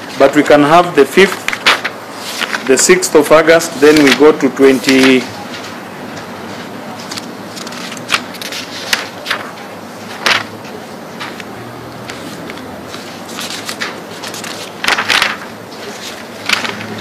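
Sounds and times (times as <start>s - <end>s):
book pages turning: 1.1s - 5.8s, 6.6s - 17.0s.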